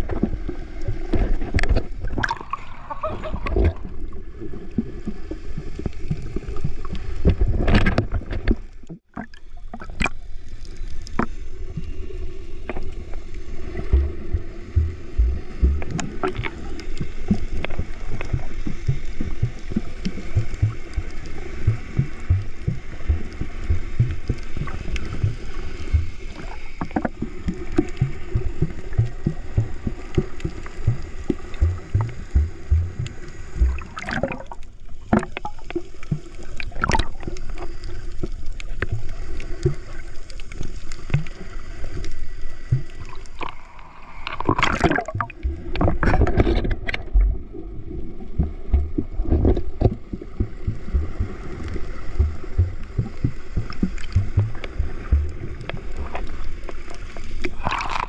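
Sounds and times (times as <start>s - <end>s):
water splashes: 0.0s - 58.0s
steady low drone: 13.6s - 16.2s, 18.2s - 26.5s
underwater sloshing thuds: 13.8s - 35.5s, 44.3s - 47.5s, 48.2s - 56.4s.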